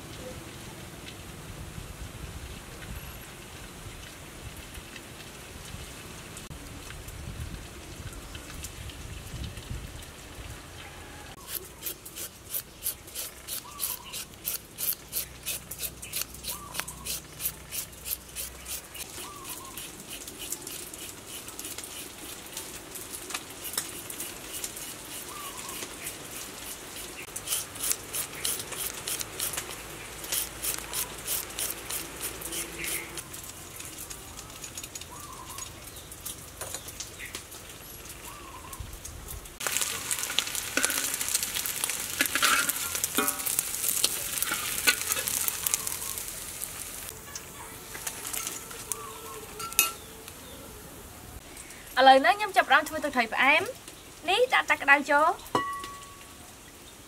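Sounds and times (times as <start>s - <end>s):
cakes sizzling in hot oil: 3.0s - 57.0s
knife cutting carrot: 11.4s - 22.2s.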